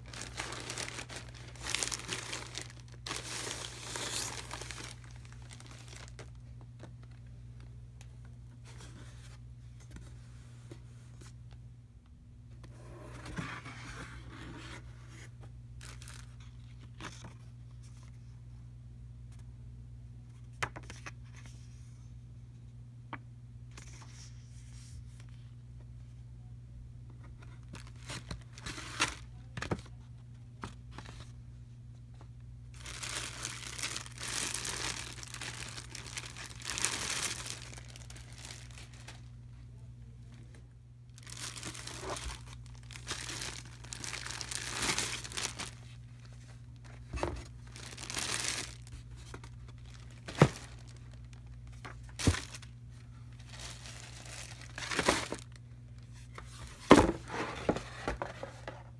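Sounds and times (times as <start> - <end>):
plastic bag crinkling and rustling: 0.0 - 7.3, 15.8 - 17.2, 27.6 - 29.9, 32.7 - 39.4, 41.1 - 58.4.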